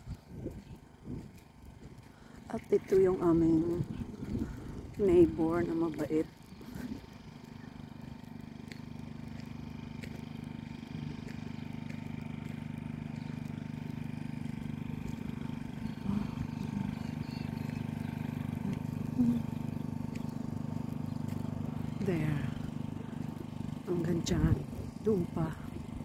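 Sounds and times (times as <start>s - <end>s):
low engine hum: 0.0s - 26.0s.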